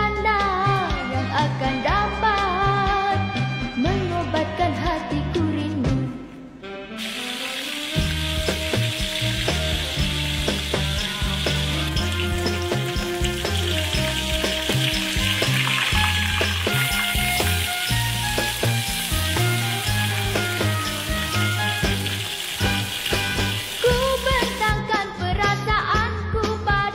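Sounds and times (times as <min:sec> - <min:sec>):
fish sizzling in hot oil: 0:07.0 - 0:24.7.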